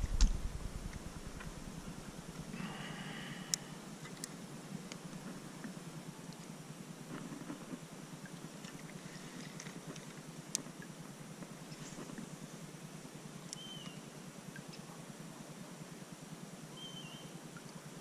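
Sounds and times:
faint open-air ambience: 0:00.0 - 0:18.0.

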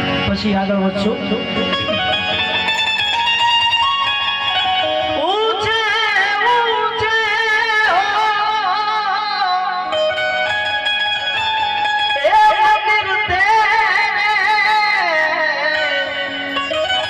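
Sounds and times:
harmonium: 0:00.0 - 0:17.0
plucked string instrument: 0:00.0 - 0:17.0
man singing: 0:05.2 - 0:10.0, 0:12.2 - 0:16.4.

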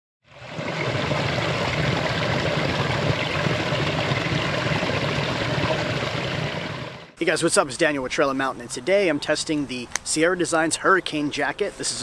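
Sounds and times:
waterfall pouring into pool: 0:00.3 - 0:07.1.

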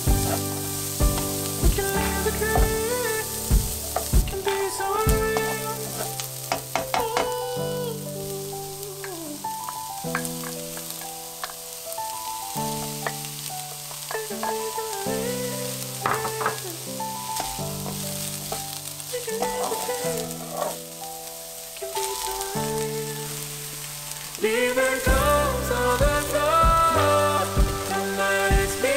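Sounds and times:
wooden spatula stirring: 0:00.0 - 0:07.4, 0:12.8 - 0:20.8
onion sizzling in a frying pan: 0:00.0 - 0:28.9.

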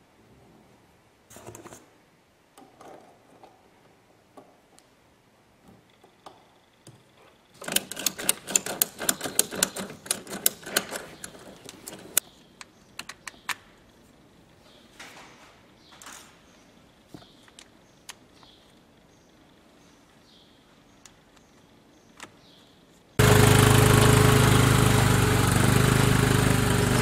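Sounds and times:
hose fittings clicking and rattling: 0:07.6 - 0:12.2.

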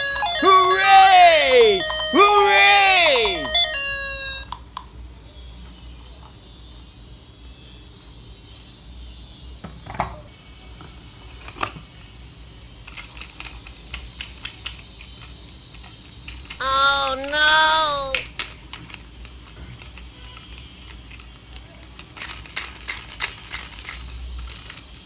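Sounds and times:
plastic toy cars clicking: 0:12.8 - 0:25.0.

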